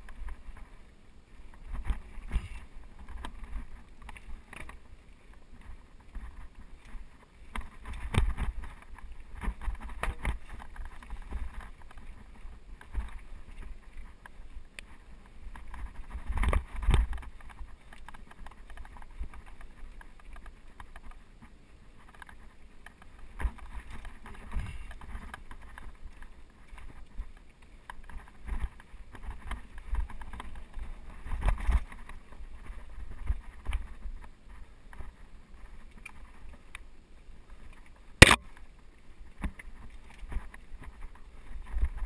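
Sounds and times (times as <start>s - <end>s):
bike tyres rolling over rock: 0.0s - 36.7s
bike rattles and knocks: 1.5s - 14.4s, 15.5s - 27.2s.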